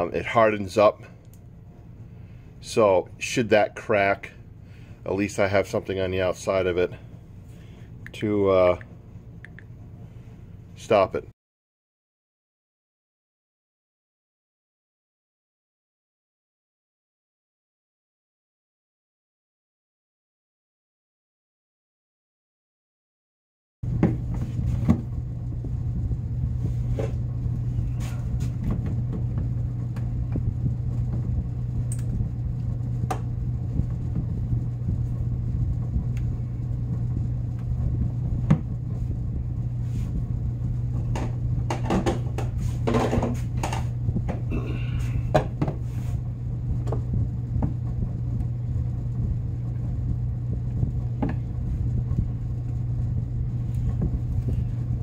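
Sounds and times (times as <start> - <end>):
low machine hum: 0.0 - 11.3, 23.8 - 55.0.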